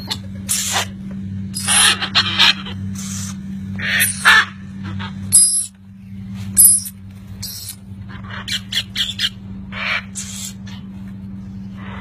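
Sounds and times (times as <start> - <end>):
steady low hum: 0.0 - 12.0
parrots squawking: 1.6 - 3.2, 3.8 - 5.7, 6.6 - 10.9, 11.8 - 12.0.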